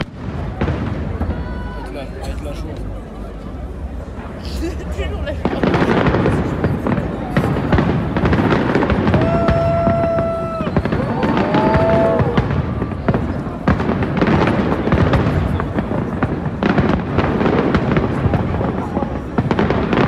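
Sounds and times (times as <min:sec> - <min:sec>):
fireworks crackling and banging: 0:00.0 - 0:20.0
firework whistling: 0:05.4 - 0:13.4.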